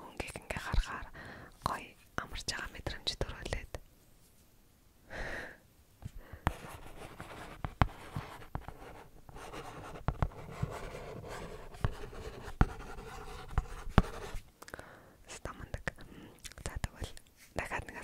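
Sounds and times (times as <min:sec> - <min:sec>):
pen scratching on plastic tablet: 0:06.4 - 0:14.4.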